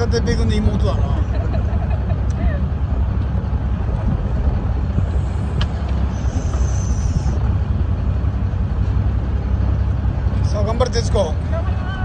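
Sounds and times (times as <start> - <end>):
boat engine rumbling: 0.0 - 12.0
wind: 0.0 - 12.0.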